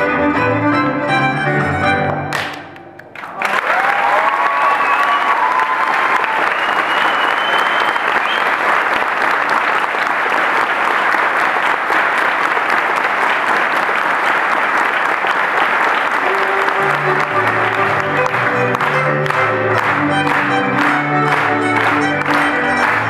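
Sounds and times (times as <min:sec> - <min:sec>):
audience applauding: 0:02.3 - 0:23.0.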